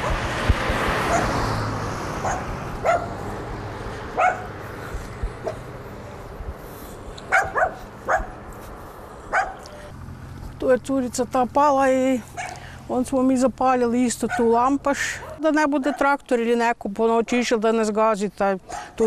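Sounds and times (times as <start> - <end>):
dog barking: 1.1 - 1.4, 2.2 - 3.2, 4.2 - 4.6, 7.3 - 8.4, 9.3 - 9.6, 12.4 - 12.6, 14.3 - 14.6, 15.2 - 16.1.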